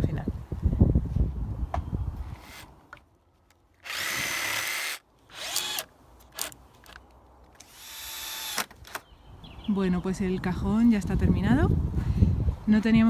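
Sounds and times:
cordless drill running: 3.8 - 6.5, 7.6 - 8.7
jigsaw cutting wood: 3.8 - 6.5, 7.6 - 8.7.

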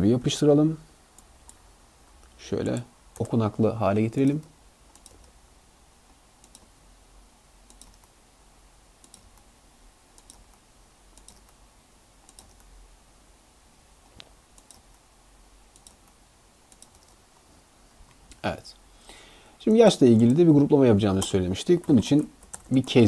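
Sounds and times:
keyboard and mouse clicks: 4.2 - 5.4, 6.4 - 6.7, 7.7 - 8.1, 9.0 - 9.5, 10.2 - 10.6, 11.2 - 11.6, 12.2 - 12.7, 14.1 - 15.0, 15.7 - 17.2, 21.2 - 23.0.

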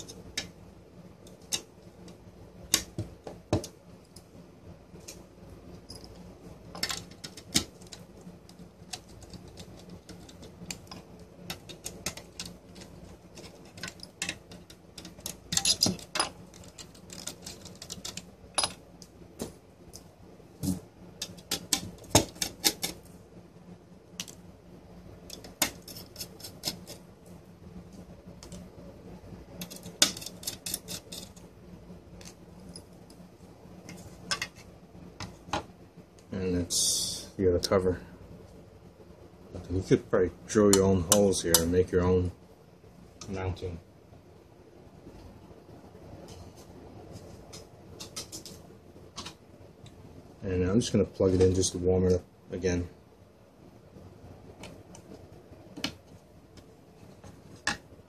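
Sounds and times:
screwdriver clicking on metal: 8.8 - 18.8.

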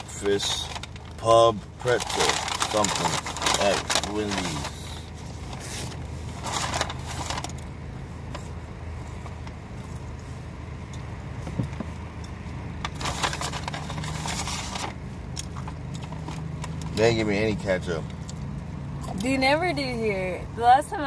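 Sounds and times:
paper bag crackling and rustling: 0.0 - 7.6, 12.9 - 15.0
car low hum: 0.0 - 21.0.

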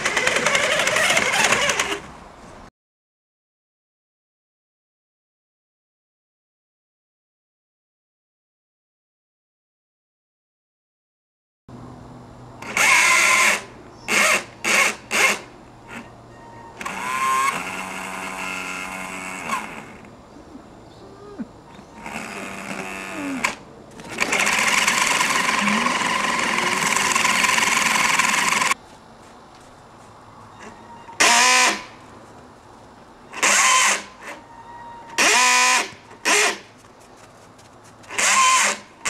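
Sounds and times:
toy car electric motor whining: 0.0 - 2.1, 12.6 - 20.1, 21.9 - 28.8, 30.6 - 31.9, 33.3 - 36.6, 38.1 - 39.0.

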